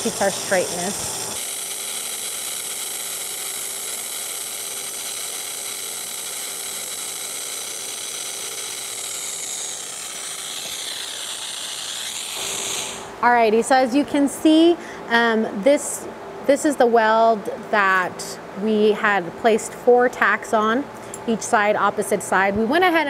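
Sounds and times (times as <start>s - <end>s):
welding arc hissing: 0.0s - 13.2s.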